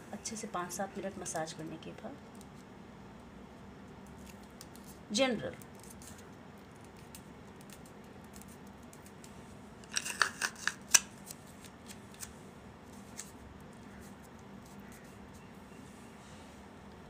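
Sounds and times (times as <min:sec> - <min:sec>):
adhesive tape clicks and crackles: 0:02.2 - 0:02.7, 0:03.8 - 0:12.3, 0:12.9 - 0:15.0.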